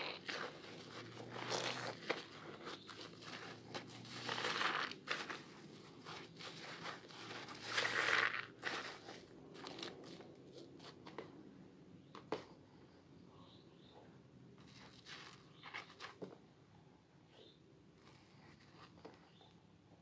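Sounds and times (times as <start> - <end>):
wet soap squishing: 0.0 - 10.1.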